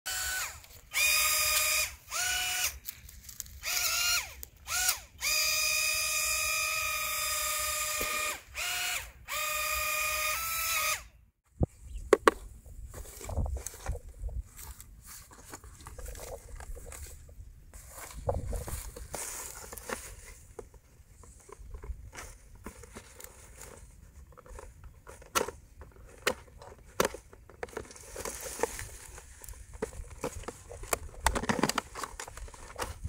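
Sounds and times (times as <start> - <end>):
remote-control car motor whining: 0.1 - 2.8, 3.6 - 11.1
box rustling: 12.2 - 33.0.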